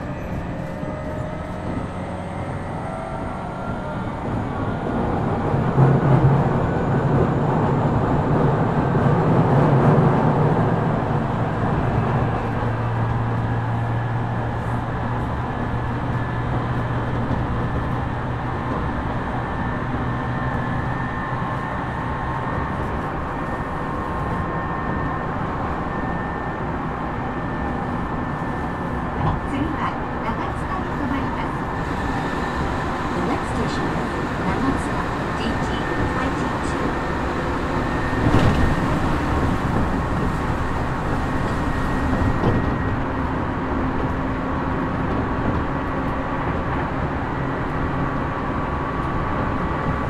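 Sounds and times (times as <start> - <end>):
train wheel and rail noise: 0.0 - 50.0
train motor hum: 25.1 - 50.0.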